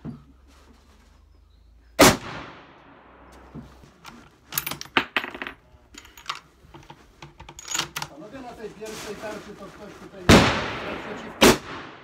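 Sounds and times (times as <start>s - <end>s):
rifle shot with echo: 2.0s - 3.2s, 10.3s - 12.0s.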